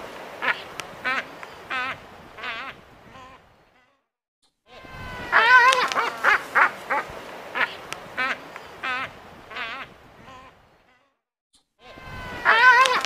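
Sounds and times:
albatross wavering calls: 0:04.7 - 0:10.6, 0:11.8 - 0:13.0
sharp bird clicks: 0:05.6 - 0:06.4.

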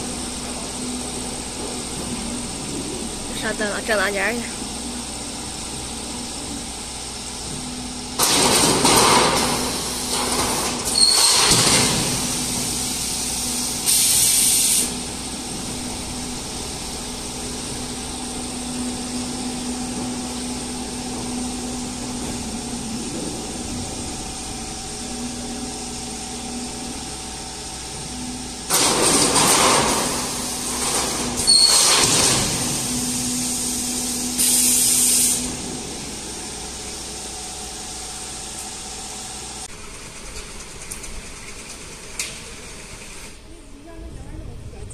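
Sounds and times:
steady machine hum: 0:00.0 - 0:44.9
loud clattering and hissing bursts: 0:08.2 - 0:15.8, 0:28.7 - 0:37.3.

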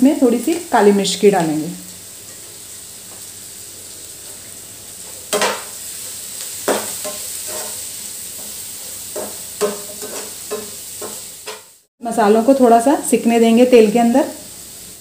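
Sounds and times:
vegetables sizzling in hot oil: 0:00.0 - 0:15.0
spatula scraping and clicking: 0:08.4 - 0:11.6
spatula knocking against pan: 0:09.1 - 0:11.6.

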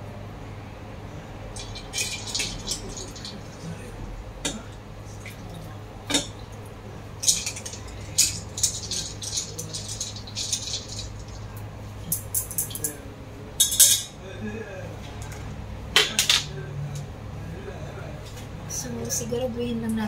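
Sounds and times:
ice and chopsticks clinking in steel bowl: 0:01.6 - 0:03.7, 0:07.2 - 0:11.5, 0:12.1 - 0:12.9, 0:13.6 - 0:14.1.

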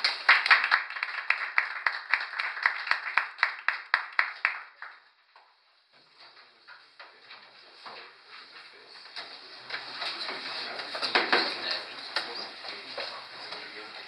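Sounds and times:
small audience applauding: 0:00.0 - 0:05.6.

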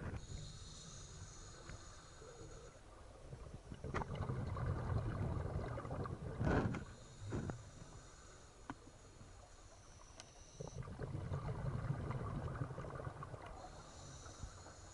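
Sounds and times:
regulator hissing inhale: 0:00.2 - 0:02.9, 0:06.8 - 0:10.0, 0:13.5 - 0:14.9
bubbling exhale: 0:03.7 - 0:08.2, 0:10.6 - 0:14.9.

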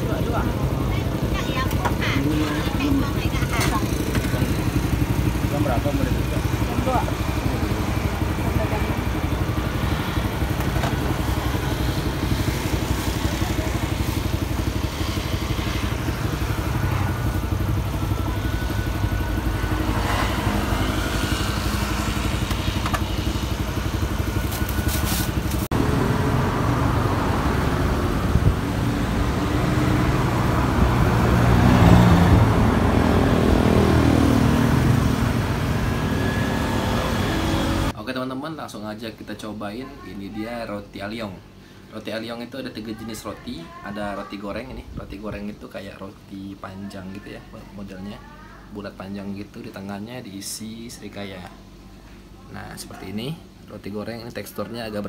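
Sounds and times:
motorcycle engines running: 0:00.0 - 0:38.0
street traffic: 0:00.0 - 0:38.0, 0:41.4 - 0:41.9, 0:42.6 - 0:45.4, 0:50.9 - 0:55.0.

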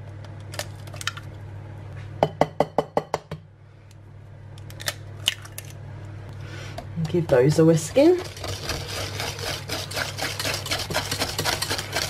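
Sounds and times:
oven humming: 0:00.0 - 0:12.0
egg shell cracking: 0:04.6 - 0:05.8.

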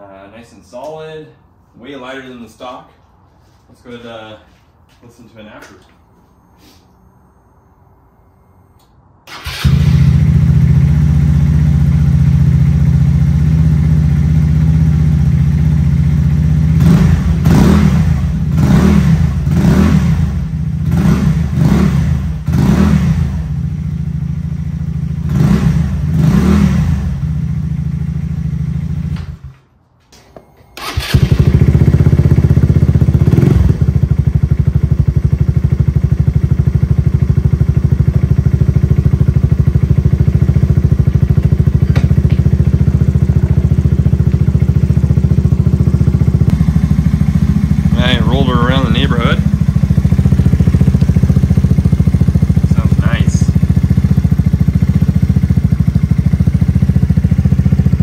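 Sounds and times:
scooter engine idling: 0:09.4 - 0:18.6, 0:26.9 - 0:29.2, 0:30.8 - 0:58.0.

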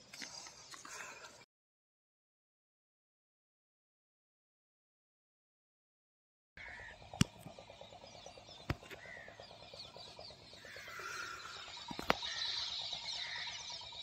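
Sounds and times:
birds chirping and calling: 0:06.6 - 0:14.0
sharp clicks: 0:11.8 - 0:12.2.

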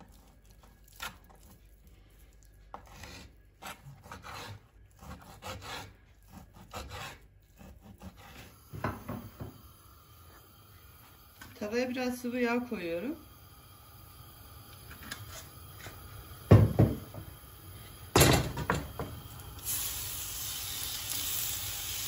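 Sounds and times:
knife cutting meat on wood: 0:00.0 - 0:01.6, 0:02.7 - 0:09.0
knock on cutting board: 0:08.8 - 0:09.6, 0:16.5 - 0:17.3.

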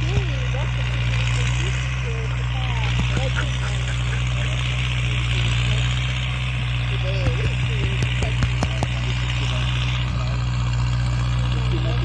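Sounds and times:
faint voices: 0:00.0 - 0:12.0
tractor diesel engine running: 0:00.0 - 0:12.0.

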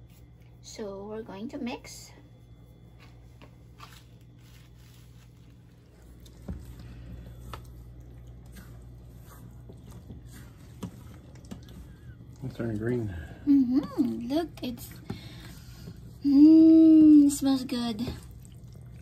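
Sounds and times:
spatula stirring wet mixture: 0:05.7 - 0:19.0.

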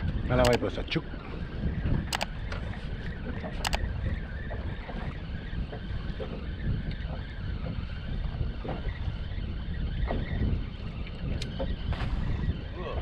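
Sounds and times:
wind buffeting microphone: 0:00.0 - 0:13.0
sharp clicks: 0:00.4 - 0:00.6, 0:02.1 - 0:02.3, 0:03.6 - 0:03.9.

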